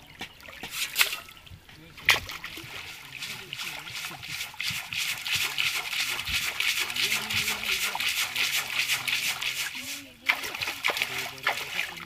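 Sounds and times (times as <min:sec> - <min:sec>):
river water sloshing: 0:00.0 - 0:12.0
people talking: 0:01.7 - 0:04.6, 0:05.4 - 0:12.0.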